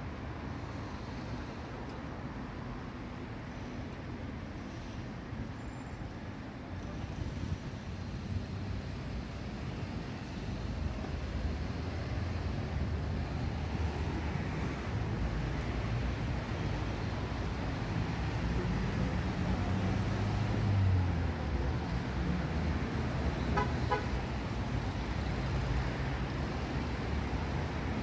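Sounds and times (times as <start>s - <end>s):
vehicle horn toots: 23.5s - 24.2s.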